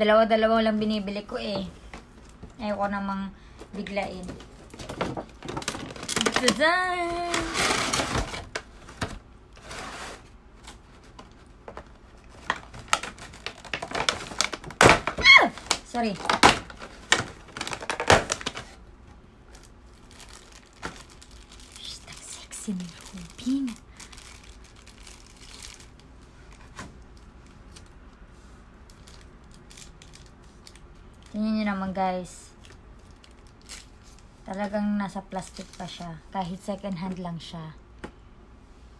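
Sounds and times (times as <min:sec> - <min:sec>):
plastic packaging clicks and crinkles: 0:03.6 - 0:09.7, 0:10.6 - 0:18.8, 0:19.5 - 0:28.0, 0:28.8 - 0:31.4, 0:32.5 - 0:34.8.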